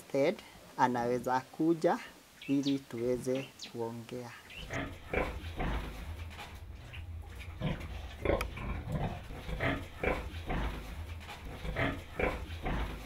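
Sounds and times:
piglets grunting: 4.6s - 6.1s, 6.9s - 13.0s
steady low rumble: 4.6s - 13.0s.

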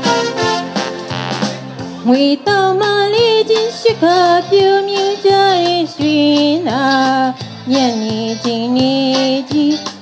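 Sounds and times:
instrumental backing music: 0.0s - 10.0s
woman singing into microphone: 2.0s - 10.0s.

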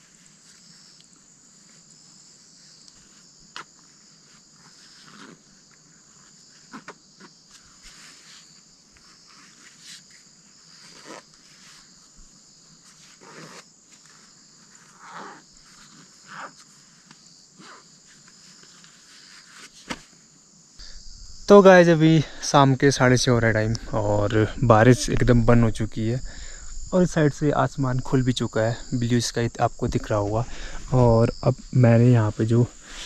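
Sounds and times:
insects chirping: 0.0s - 33.0s.

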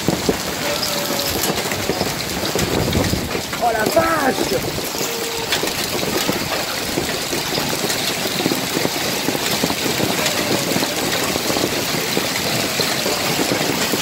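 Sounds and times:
hail and rain pelting down: 0.0s - 14.0s.

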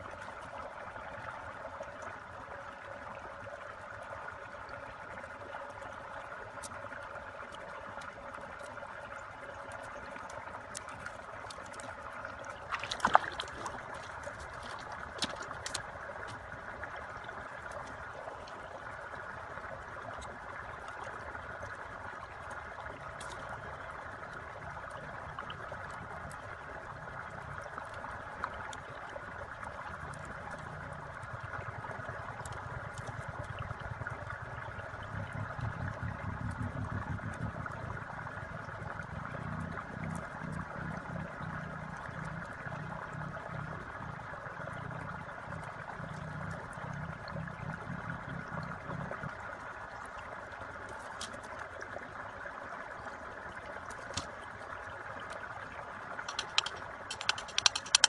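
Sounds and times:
bamboo strips clicking and rustling: 56.3s - 58.0s
sharp bamboo crack: 56.3s - 58.0s.

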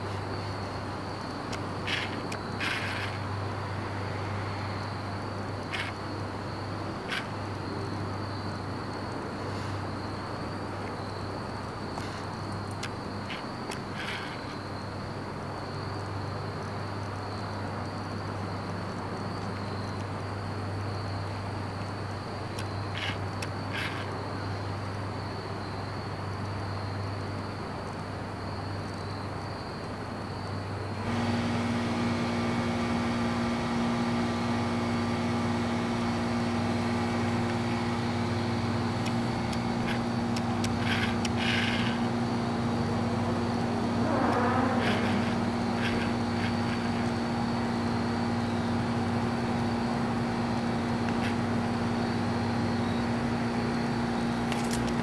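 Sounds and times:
outdoor background noise: 0.0s - 55.0s
thin high whine: 31.0s - 54.8s
steady machine hum: 31.0s - 55.0s
falling pitch sweep: 43.9s - 46.3s.

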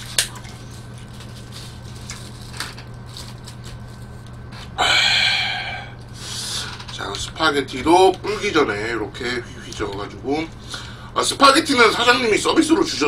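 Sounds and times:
low steady hum: 0.0s - 13.0s
man crying out: 4.8s - 6.0s.

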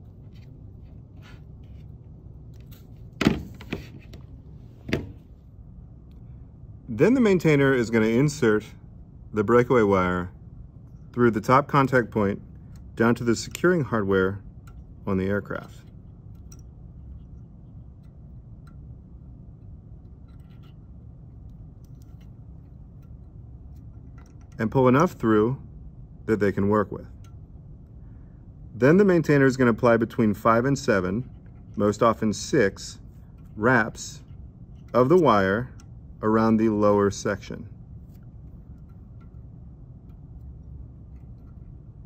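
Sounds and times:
steady low hum: 0.0s - 42.0s
handling wire and hand tools: 10.9s - 25.1s, 30.2s - 42.0s
light wire ticks and scrapes: 19.6s - 24.6s, 38.0s - 41.9s.

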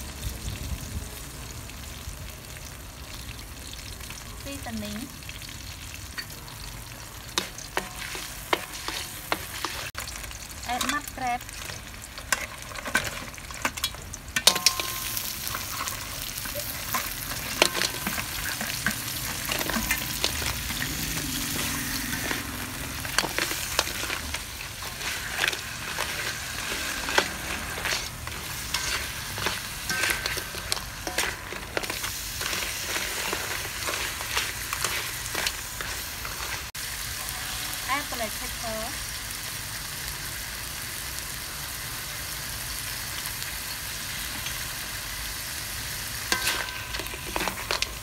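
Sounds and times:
crab pieces sizzling in oil: 0.0s - 48.0s
spatula scraping and clacking on wok: 7.3s - 37.9s, 46.2s - 48.0s.

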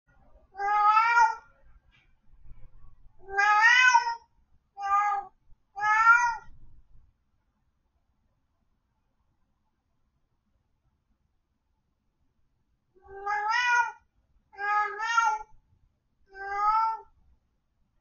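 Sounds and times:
cat meowing: 0.6s - 1.5s, 3.2s - 6.5s, 13.0s - 15.6s, 16.3s - 17.2s.

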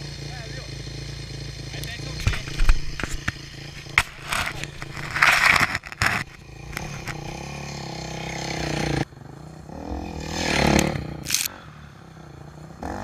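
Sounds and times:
dirt bike engine: 0.0s - 13.0s
knocks and gritty scraping: 1.8s - 7.8s, 9.9s - 11.5s.

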